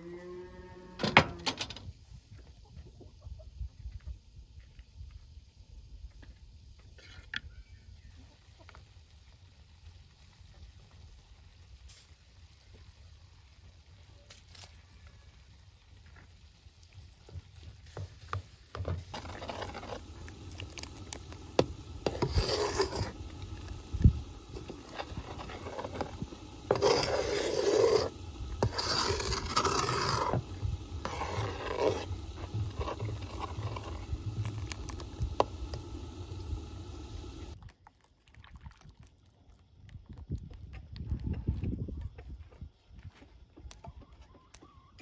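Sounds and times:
rough scraping and rubbing: 19.0 - 36.2.

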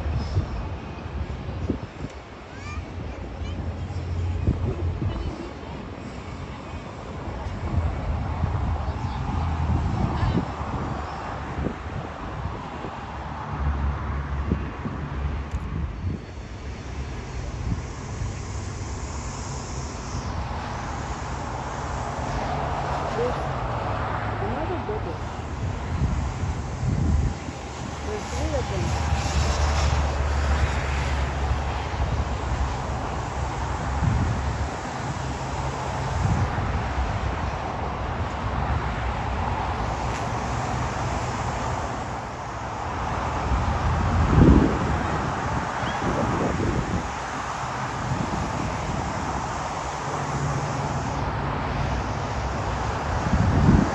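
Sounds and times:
wind buffeting microphone: 0.0 - 19.3, 20.2 - 53.9
jet engines rumbling: 0.0 - 53.9
faint high whine: 16.0 - 24.0.

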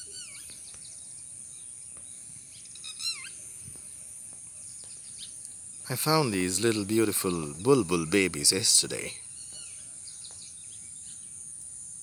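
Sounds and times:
bird whistled notes: 0.0 - 0.6
bird chirping call: 0.0 - 3.6.

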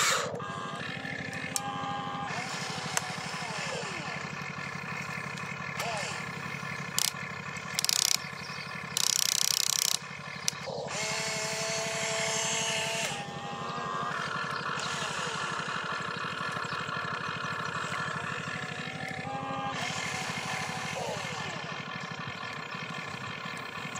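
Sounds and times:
small electric motors whirring: 0.0 - 4.2, 6.9 - 15.7, 18.9 - 21.7
steady buzzing hum: 0.0 - 4.2, 6.1 - 16.0, 18.1 - 22.3
loud grinding bursts: 0.0 - 22.8.

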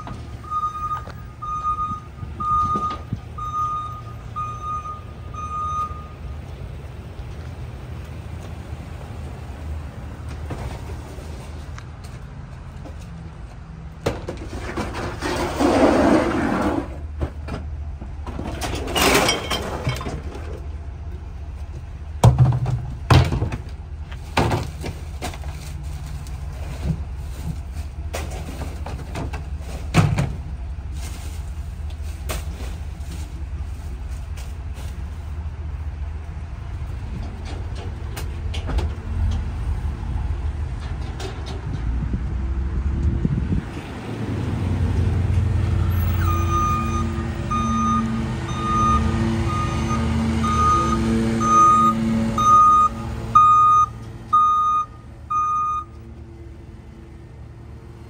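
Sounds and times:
recyclables clattering into hopper: 18.4 - 20.5.

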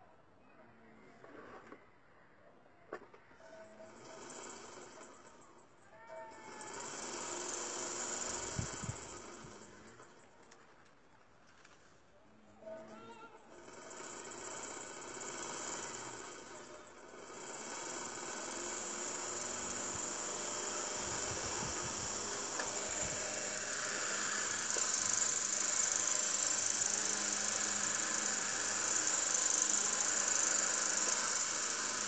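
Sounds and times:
electric fan whirring: 6.5 - 9.9, 13.5 - 32.0.

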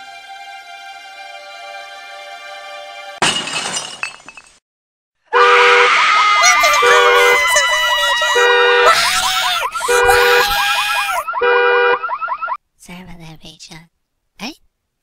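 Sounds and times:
siren whooping: 5.7 - 12.6
high held alarm tones: 6.6 - 12.6.

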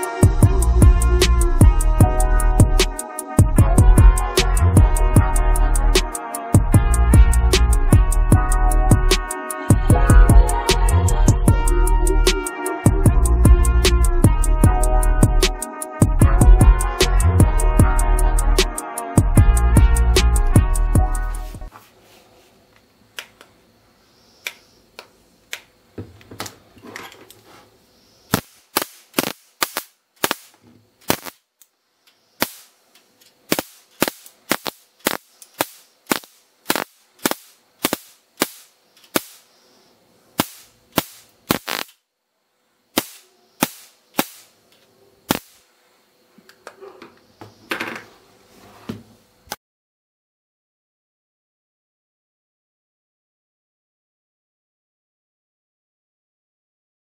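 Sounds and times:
electric spark snaps: 24.4 - 25.7, 28.3 - 39.6, 40.4 - 42.0, 42.9 - 45.7.

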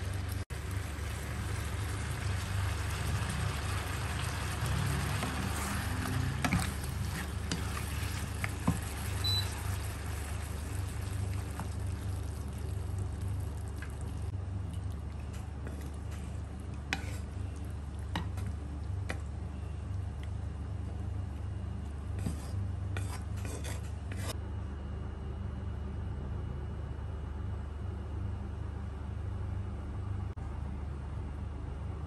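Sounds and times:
steady low hum: 0.0 - 32.0
wooden spatula scraping a wok: 1.5 - 11.8, 16.8 - 17.4, 22.1 - 24.4.

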